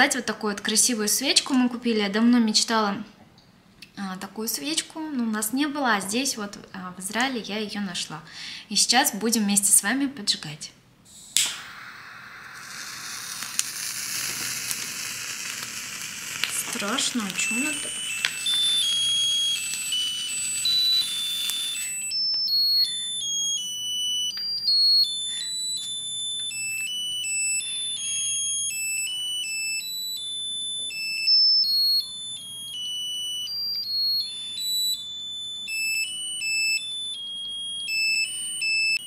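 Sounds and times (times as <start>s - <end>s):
sparkler fizzing hiss: 11.2s - 22.1s
tinny electronic melody beeps: 11.5s - 39.0s.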